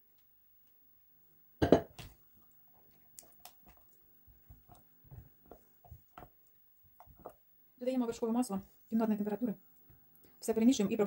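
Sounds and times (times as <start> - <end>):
loud knock: 1.6 - 1.9
spatula stirring thick ganache: 2.8 - 7.5.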